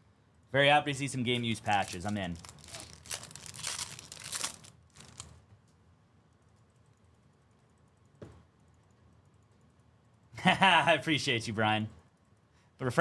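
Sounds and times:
foil wrapper crinkling: 1.4 - 5.4.

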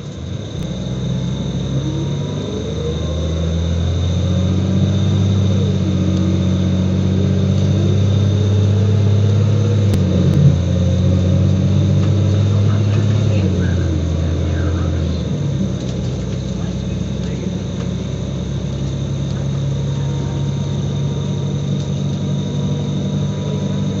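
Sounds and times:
bus engine drone: 0.0 - 24.0.

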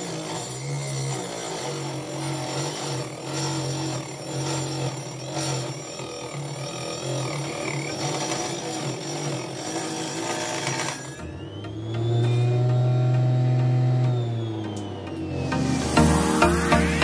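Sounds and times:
table saw cutting wood: 0.0 - 17.0.

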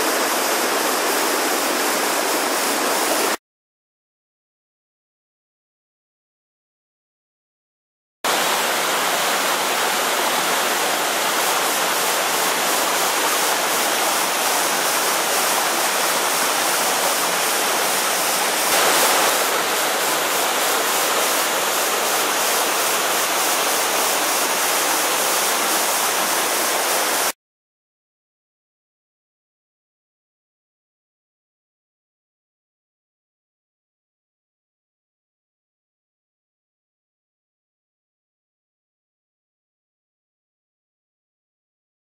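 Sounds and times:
small waterfall splashing: 0.0 - 3.4, 8.3 - 27.4.

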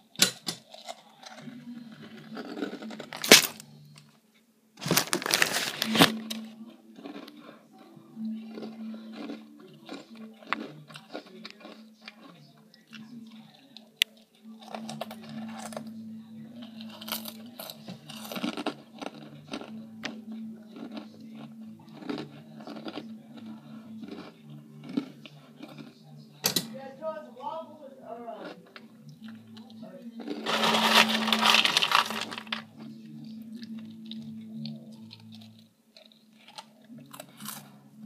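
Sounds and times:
cereal crunching: 0.6 - 3.7, 4.8 - 7.9, 8.5 - 15.9, 16.6 - 25.9, 30.1 - 32.9.

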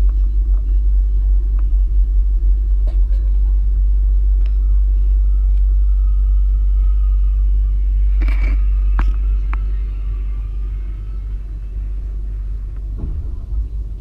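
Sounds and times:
faint steady whine: 0.0 - 14.0
train low rumble: 0.0 - 14.0
sharp knocks: 12.9 - 14.0.

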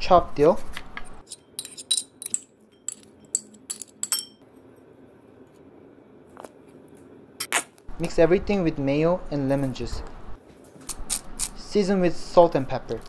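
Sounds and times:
metal utensil clinking on bowl: 1.3 - 4.4.

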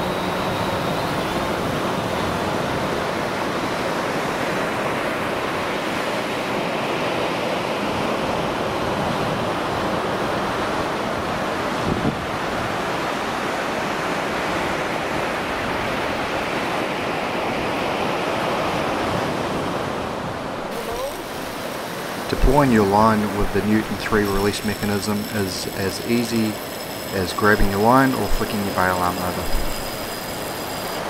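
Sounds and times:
wind on microphone: 11.8 - 12.5.

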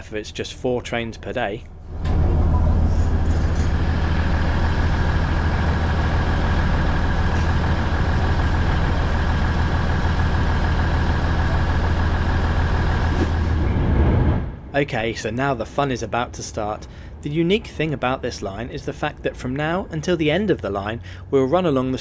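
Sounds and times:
diesel engine idling: 1.7 - 13.6.

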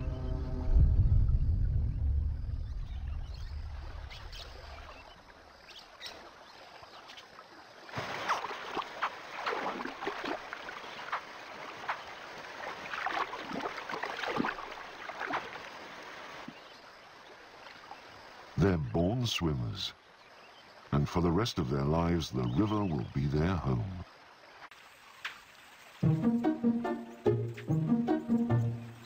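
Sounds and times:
water splashing and sloshing: 2.7 - 18.6, 24.0 - 29.0.

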